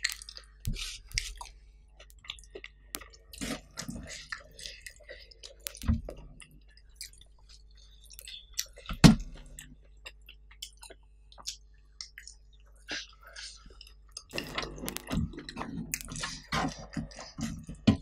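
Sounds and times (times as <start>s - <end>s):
chewing and lip smacking: 0.0s - 18.0s.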